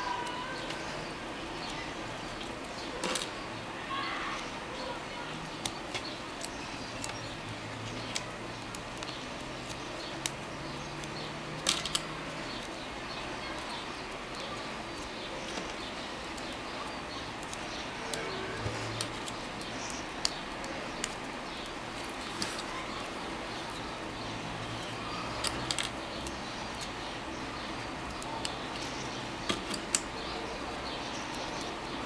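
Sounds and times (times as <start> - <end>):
plastic rings clicking together: 5.5 - 12.8, 25.4 - 27.0.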